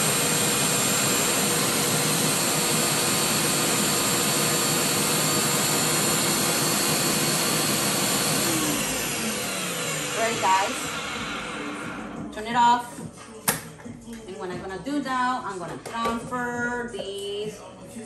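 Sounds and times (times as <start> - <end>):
blender motor winding down: 0.0 - 12.3
blender running: 0.0 - 12.3.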